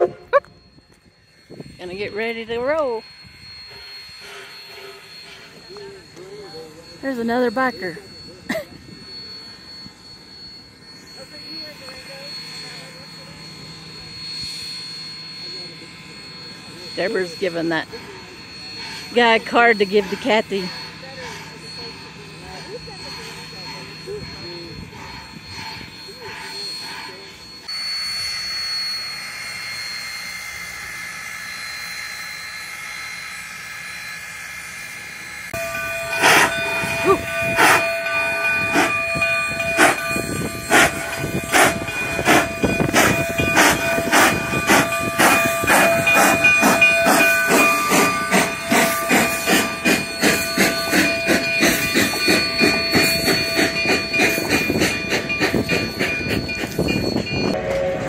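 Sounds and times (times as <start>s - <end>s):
steam locomotive exhaust chuffs: 0.0s - 58.0s
steam hissing: 1.1s - 58.0s.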